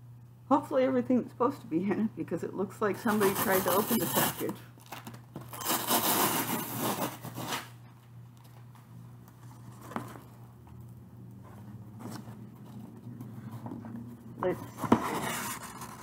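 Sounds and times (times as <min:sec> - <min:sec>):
faint steady hum: 0:00.0 - 0:16.0
tape and cardboard tearing: 0:03.1 - 0:07.8, 0:14.7 - 0:16.0
cardboard flaps scraping: 0:05.4 - 0:07.8, 0:11.4 - 0:16.0.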